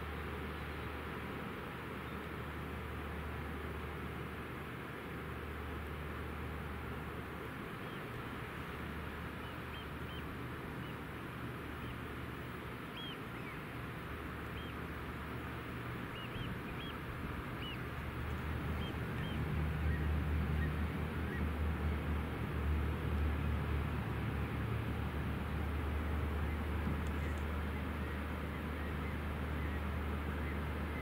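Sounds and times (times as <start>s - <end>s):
boat engine hum: 0.0s - 31.0s
high bird calls: 16.1s - 17.9s.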